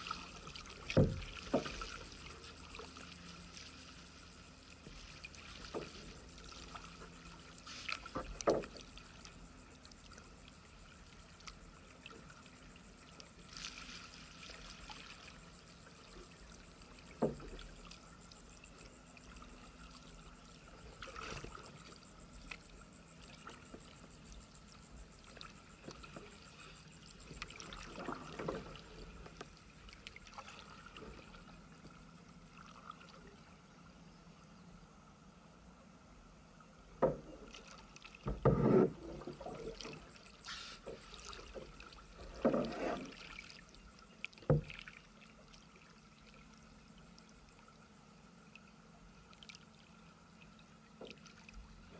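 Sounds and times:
paddle splashing in water: 0:00.0 - 0:09.3, 0:13.4 - 0:15.6, 0:20.9 - 0:22.5, 0:25.8 - 0:31.9, 0:37.0 - 0:46.4.

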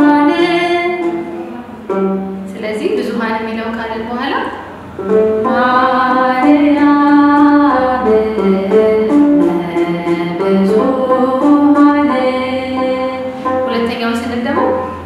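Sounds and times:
woman singing a hymn: 0:00.0 - 0:01.1, 0:05.4 - 0:15.0
lyre plucking: 0:00.0 - 0:15.0.

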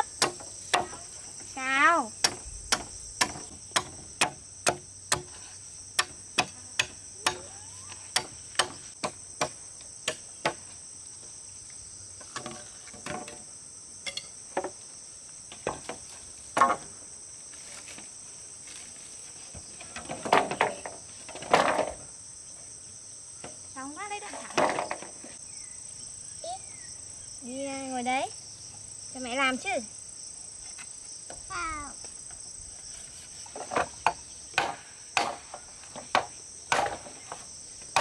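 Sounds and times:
high-pitched insect drone: 0:06.6 - 0:08.3
sharp knocks: 0:33.6 - 0:37.4.

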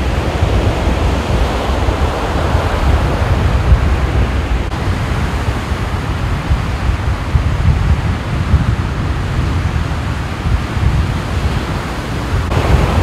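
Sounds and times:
heavy surf breaking: 0:00.0 - 0:13.0
wind buffeting microphone: 0:00.0 - 0:13.0.

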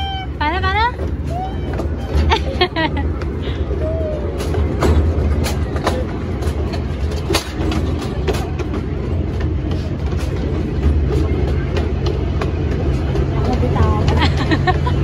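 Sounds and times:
ride cars rumbling: 0:00.0 - 0:15.0.

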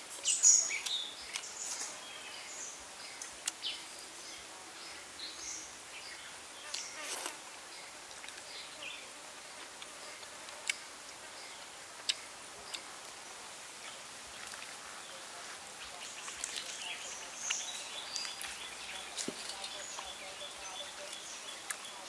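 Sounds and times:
bird chirps: 0:15.8 - 0:22.0.

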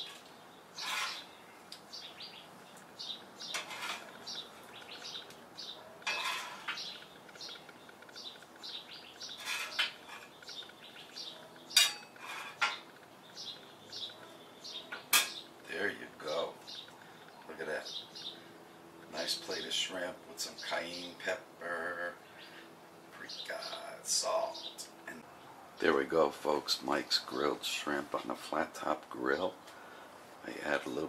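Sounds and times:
metal scraper scraping griddle: 0:00.0 - 0:01.4, 0:03.5 - 0:04.2, 0:06.0 - 0:07.0, 0:09.3 - 0:10.4, 0:11.7 - 0:12.8
sharp metal clank: 0:11.7 - 0:12.8, 0:15.1 - 0:15.4.

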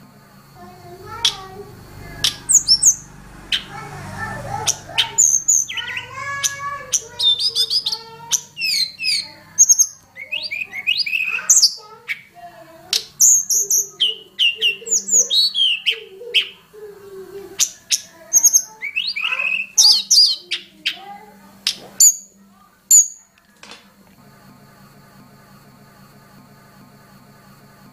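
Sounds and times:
bird singing high whistles and trills: 0:02.2 - 0:03.8, 0:04.6 - 0:12.3, 0:13.0 - 0:16.6, 0:17.6 - 0:21.0.

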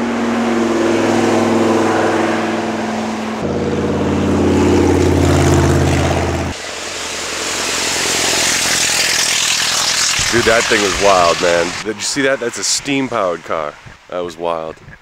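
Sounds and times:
car engines driving past: 0:00.0 - 0:11.9
hiss: 0:06.6 - 0:11.8.

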